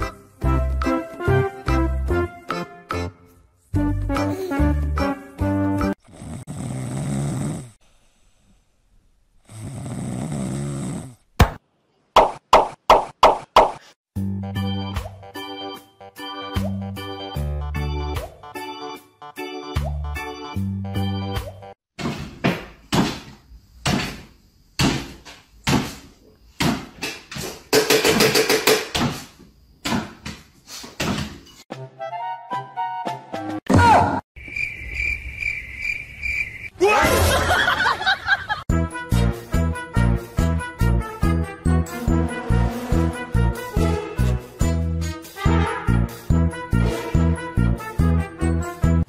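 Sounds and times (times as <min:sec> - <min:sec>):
rasping snores: 0:05.9 - 0:07.8, 0:09.4 - 0:11.3.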